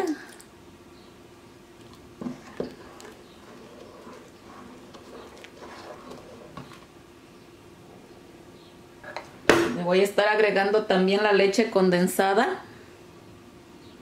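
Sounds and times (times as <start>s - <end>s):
soft sloshing: 1.8s - 7.0s
spatula stirring rice in pot: 1.8s - 7.0s.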